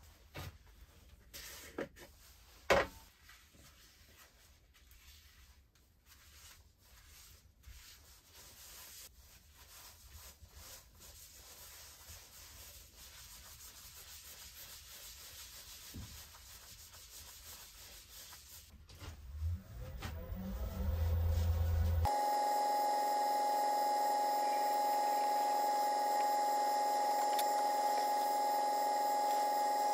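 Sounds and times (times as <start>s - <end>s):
paper towel rubbing wood: 3.6s - 18.8s, 20.8s - 22.1s.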